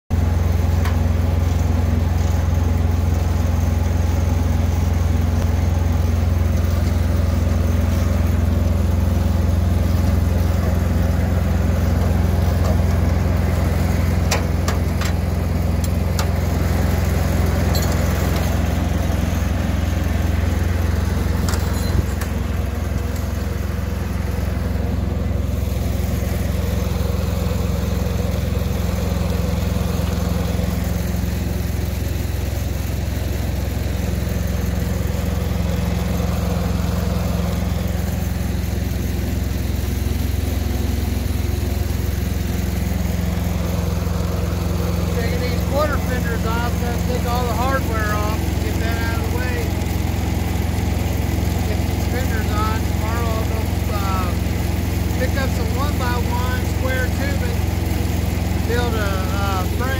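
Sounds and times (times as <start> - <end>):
truck diesel engine idling: 0.1 - 59.9
metallic clinks of hand tools: 21.5 - 22.3.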